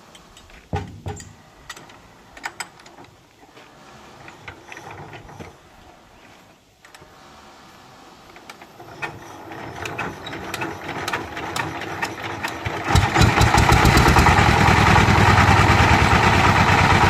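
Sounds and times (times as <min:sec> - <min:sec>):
metal clicks and clanks of starting crank: 0:00.1 - 0:03.2, 0:04.2 - 0:05.6, 0:08.3 - 0:13.8.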